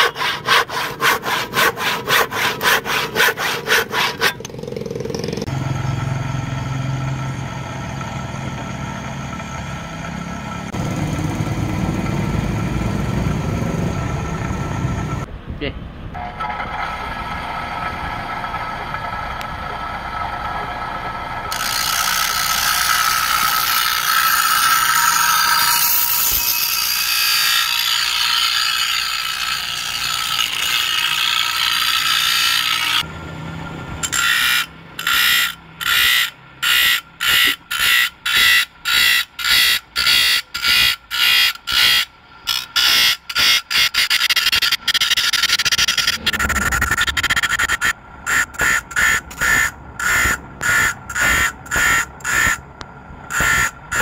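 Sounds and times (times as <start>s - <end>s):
abrasive disc grinding steel: 0.0s - 5.5s, 16.2s - 33.1s, 34.0s - 54.0s.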